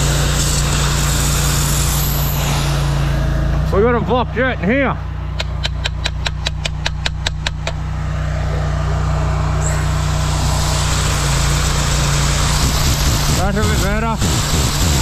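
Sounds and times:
engine and pump running: 0.0s - 15.0s
water jet hissing: 9.6s - 15.0s.

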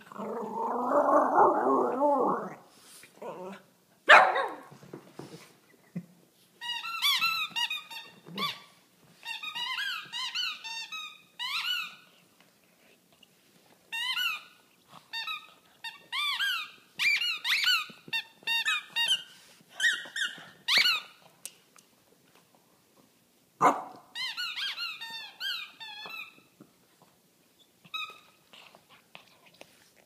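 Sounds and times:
squeaky dog toy squeaking: 6.6s - 12.1s, 13.9s - 21.2s, 24.1s - 26.5s, 27.9s - 28.4s.

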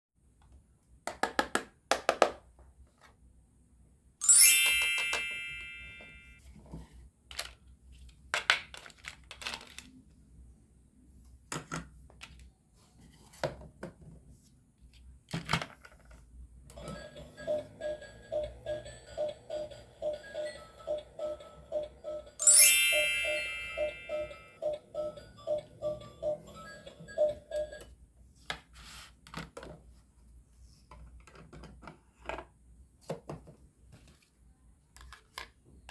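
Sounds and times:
bright ringing ding: 4.2s - 6.4s, 22.4s - 24.6s
plastic toys clicking and knocking: 7.2s - 10.0s, 15.3s - 16.4s, 30.9s - 33.6s.

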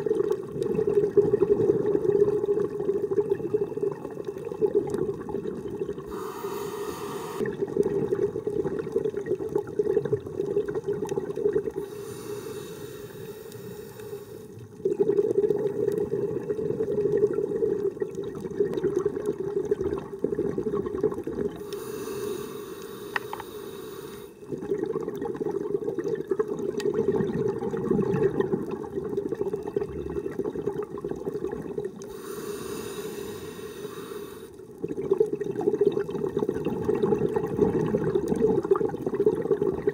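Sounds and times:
exhaled bubbles rushing: 0.0s - 6.2s, 7.3s - 11.9s, 14.7s - 21.7s, 24.4s - 32.0s, 34.8s - 39.9s
regulator breathing hiss: 6.1s - 7.5s, 11.8s - 14.6s, 21.6s - 24.4s, 32.1s - 34.6s.

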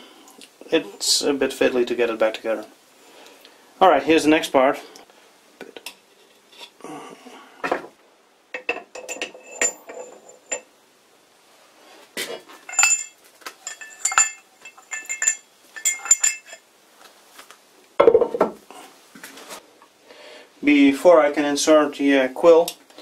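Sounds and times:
metal parts clinking: 12.5s - 16.6s
dull metal knock: 18.0s - 18.6s.

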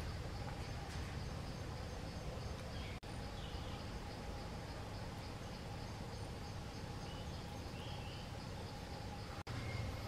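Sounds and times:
bird chirps: 0.0s - 10.0s
insects trilling: 0.0s - 10.0s
steady forest hiss: 0.0s - 10.0s.

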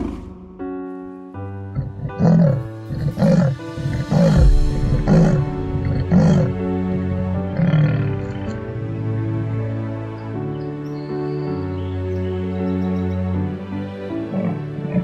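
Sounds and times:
background music: 0.0s - 15.0s
leopard sawing grunts: 1.8s - 6.6s, 7.3s - 8.8s, 14.2s - 15.0s.

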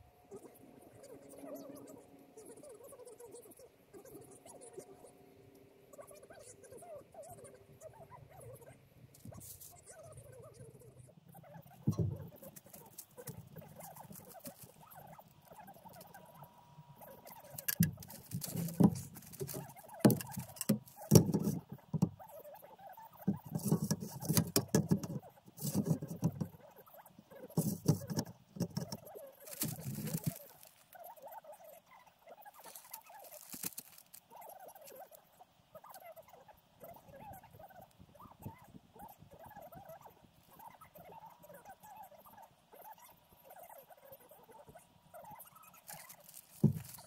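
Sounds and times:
plastic sheeting crinkling: 11.9s - 14.8s, 17.4s - 21.7s, 28.8s - 31.0s, 32.5s - 34.2s, 45.8s - 47.0s.

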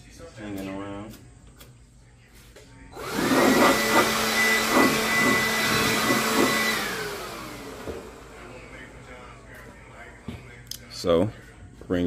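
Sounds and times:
handheld vacuum motor whining: 3.0s - 8.5s.

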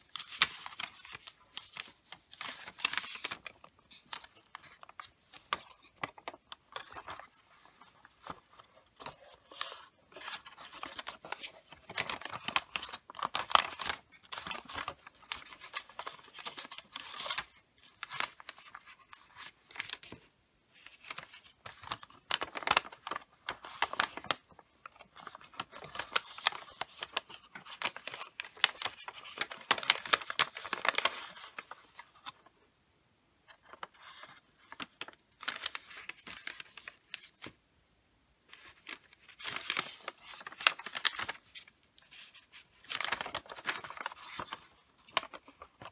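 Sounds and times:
wrapping paper rustling and crinkling: 0.0s - 32.5s, 33.5s - 37.6s, 38.5s - 45.9s.

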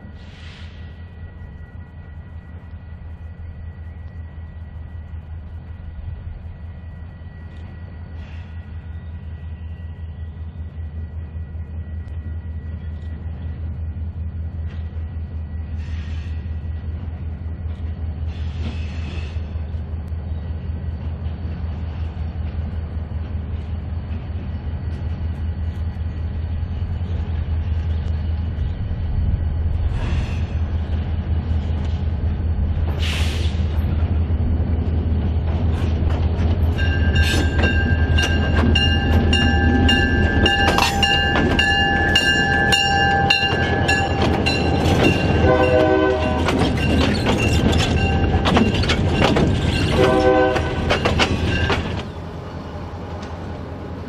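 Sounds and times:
diesel locomotive engine drone: 0.0s - 54.0s
wheels clicking on rail joints: 35.4s - 52.2s
train air horn blasts: 45.3s - 46.6s, 49.9s - 51.0s.

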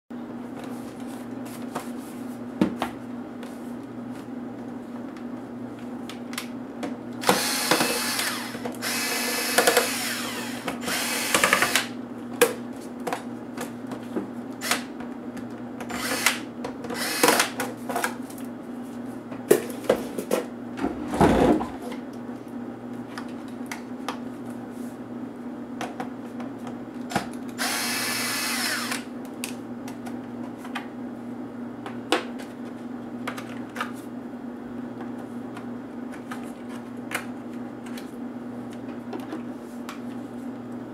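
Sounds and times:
electric screwdriver whirring: 7.2s - 11.9s, 15.9s - 16.4s, 17.0s - 17.6s, 27.6s - 29.1s.

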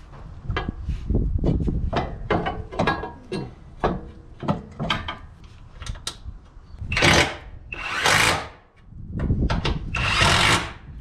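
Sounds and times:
cordless impact wrench bursts: 6.9s - 8.6s, 9.9s - 10.8s.

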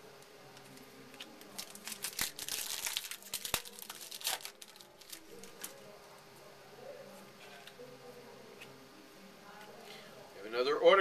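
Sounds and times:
foil wrapper tearing and crinkling: 1.4s - 5.8s.

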